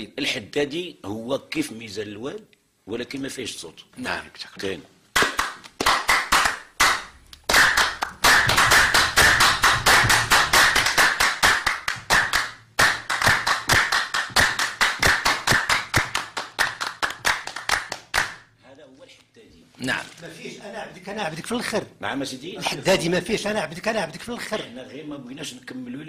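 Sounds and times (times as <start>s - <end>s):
group of people clapping: 5.1s - 18.5s.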